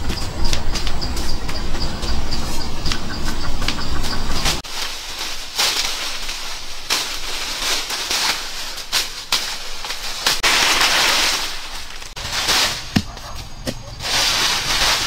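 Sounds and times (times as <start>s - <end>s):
leafy branches rustling: 0.0s - 15.0s
twigs snapping: 4.4s - 13.9s.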